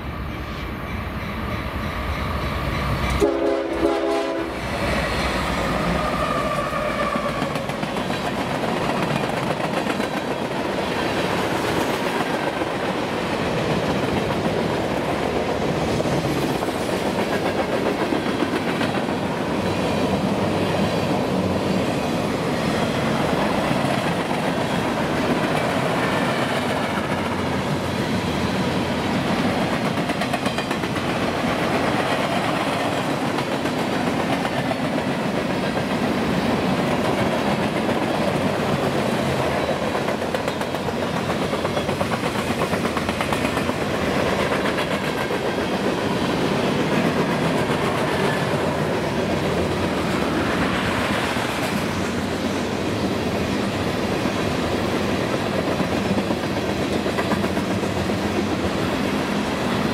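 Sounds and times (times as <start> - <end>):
train wheels rumbling on rail: 0.0 - 59.9
clickety-clack over rail joints: 6.5 - 21.2, 23.1 - 27.7, 29.2 - 52.3, 55.0 - 59.2.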